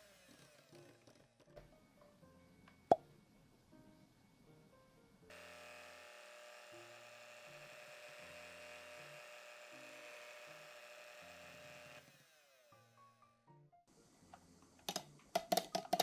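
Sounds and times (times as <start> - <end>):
electric hand mixer whirring: 0.0 - 1.2, 5.3 - 13.0.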